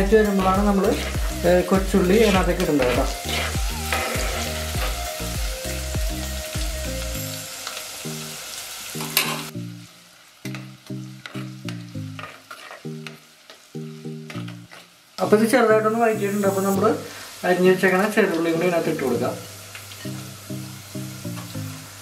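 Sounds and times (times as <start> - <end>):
food sizzling in hot oil: 0.0 - 22.0
spoon tapping and scraping pot: 12.1 - 13.6.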